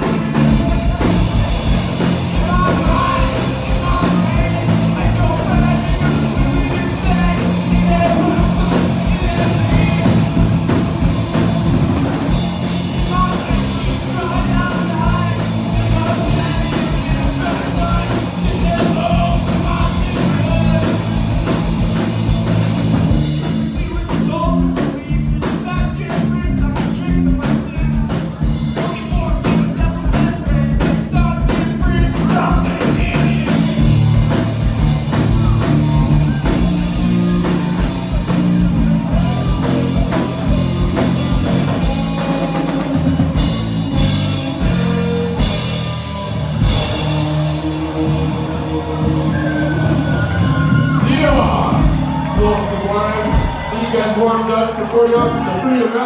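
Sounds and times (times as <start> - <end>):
rock band playing: 0.0 - 56.0.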